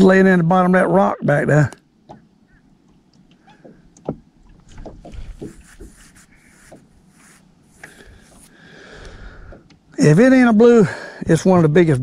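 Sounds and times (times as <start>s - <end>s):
fishing tackle knocks and rustles: 2.0s - 7.1s.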